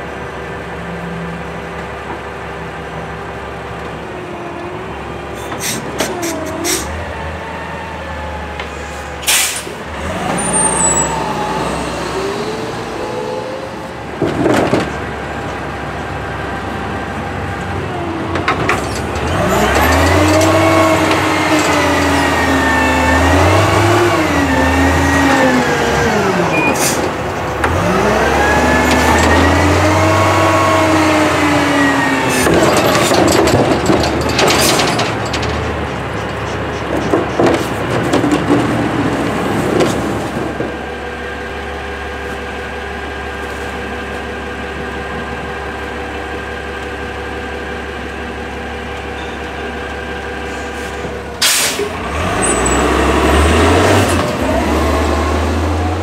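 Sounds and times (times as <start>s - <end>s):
truck engine revving: 0.0s - 56.0s
metallic clanks and bangs: 32.3s - 40.8s.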